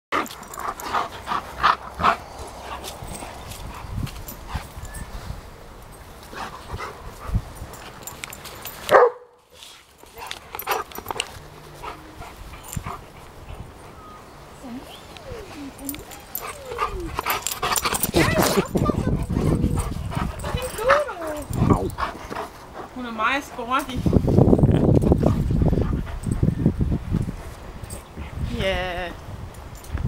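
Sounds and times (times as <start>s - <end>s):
dogs barking and yipping: 7.8s - 9.3s, 15.0s - 22.8s.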